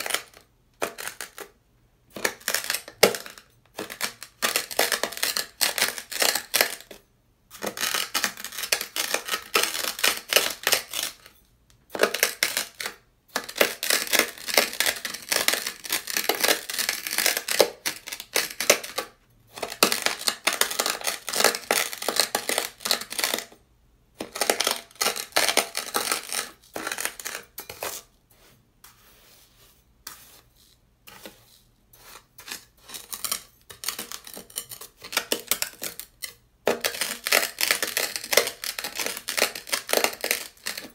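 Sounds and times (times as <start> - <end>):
knife dragging through gritty sand: 27.6 - 33.0.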